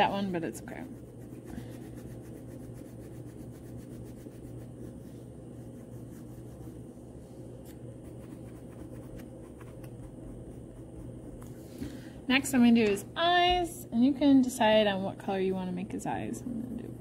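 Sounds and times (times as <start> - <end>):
crayon rubbing on paper: 0.0 - 6.8, 8.0 - 11.4
low hum: 0.0 - 17.0.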